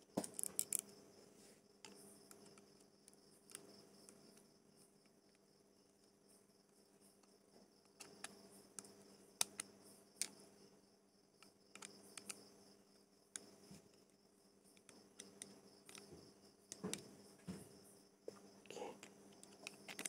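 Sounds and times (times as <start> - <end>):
faint steady hum: 0.0 - 20.0
small reel parts clicking: 0.2 - 1.0, 7.2 - 10.4, 11.4 - 12.5, 14.7 - 17.1, 19.0 - 20.0.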